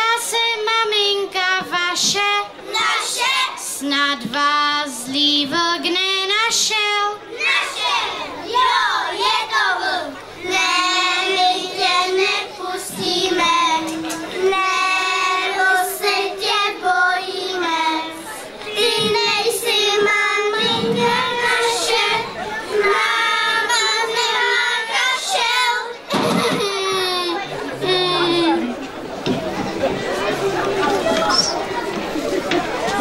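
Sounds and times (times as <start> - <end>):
children singing: 2.0 - 3.8, 7.4 - 26.4.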